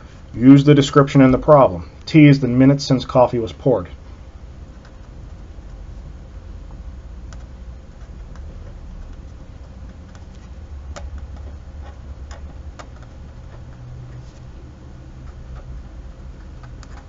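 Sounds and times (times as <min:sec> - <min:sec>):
steady low hum: 0:00.0 - 0:17.0
marker tapping on paper: 0:07.3 - 0:13.9.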